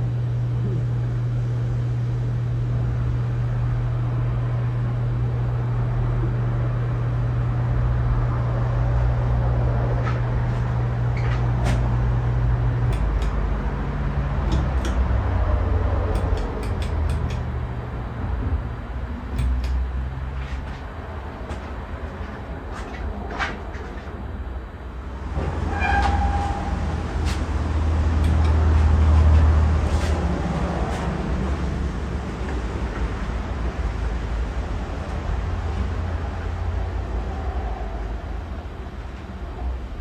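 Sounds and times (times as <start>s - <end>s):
ceiling fan motor hum: 0.0s - 40.0s
rumble of moving air: 0.0s - 40.0s
sharp clicks: 12.8s - 13.5s, 14.4s - 15.1s, 16.1s - 17.5s, 19.3s - 19.9s, 28.2s - 29.5s.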